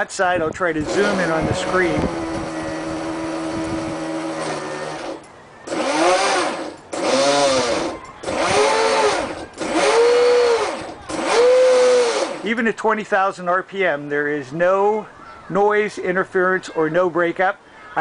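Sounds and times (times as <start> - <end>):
electric motor whining: 0.8 - 12.5
motor revving: 0.8 - 12.5.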